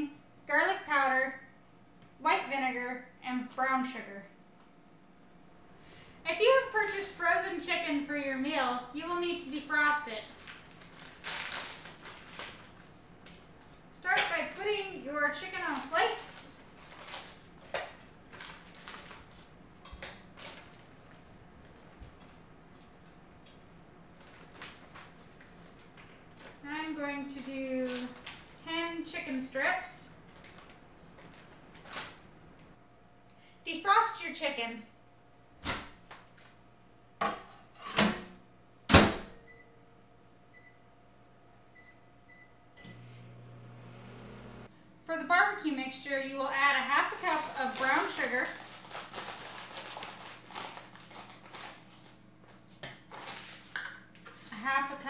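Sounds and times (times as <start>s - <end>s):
plastic bag crinkling: 10.2s - 13.7s, 15.4s - 20.8s, 24.2s - 26.6s, 27.2s - 28.6s, 30.2s - 32.3s, 46.8s - 52.2s, 53.0s - 54.8s
microwave oven humming: 34.9s - 45.6s
keypad beeps: 40.5s - 40.8s, 41.8s - 43.0s.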